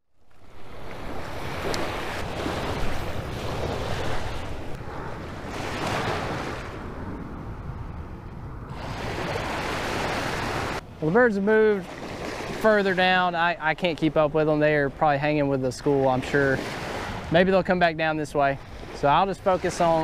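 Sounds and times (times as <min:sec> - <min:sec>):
surf waves washing onto beach: 0:00.3 - 0:07.6, 0:08.6 - 0:20.0
wind buffeting microphone: 0:00.4 - 0:11.1, 0:11.8 - 0:20.0.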